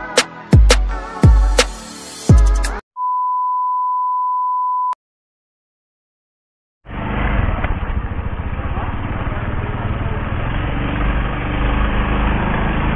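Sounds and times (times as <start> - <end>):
music beat with deep bass drums: 0.0 - 2.8
electronic beep: 3.0 - 5.0
low rumble of street and engines: 6.9 - 12.9.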